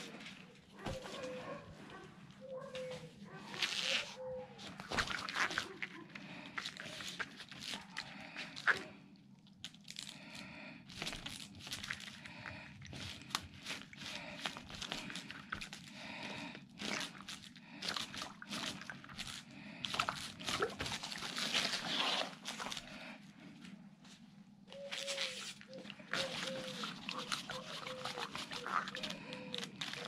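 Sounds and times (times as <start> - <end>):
rubbing and crinkling balloon: 0.0 - 9.0, 9.7 - 23.6, 24.7 - 30.0
rubber balloon squeaks: 3.6 - 5.6, 24.8 - 30.0.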